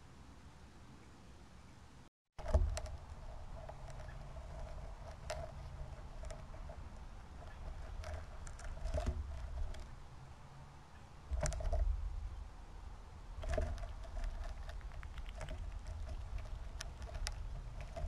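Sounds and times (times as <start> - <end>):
squirrel rattling seeds: 2.4 - 10.0, 13.4 - 18.0.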